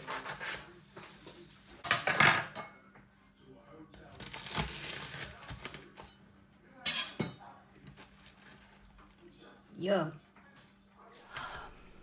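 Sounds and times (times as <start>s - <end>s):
knife cutting sandwich on board: 0.0s - 0.7s
kitchen clatter: 1.8s - 2.8s.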